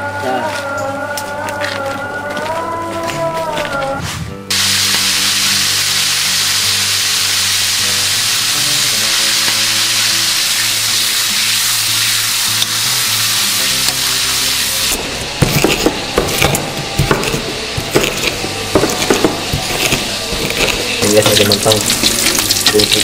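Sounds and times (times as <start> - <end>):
oil sizzling in a wok: 4.5 - 16.6, 17.5 - 23.0
pestle grinding in stone mortar: 13.6 - 23.0
spatula stirring and scraping: 14.8 - 23.0.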